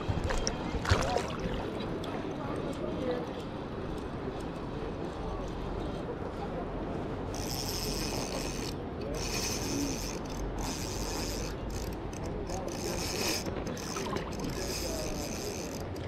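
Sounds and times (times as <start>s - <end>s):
fishing reel whirring: 7.3s - 16.0s.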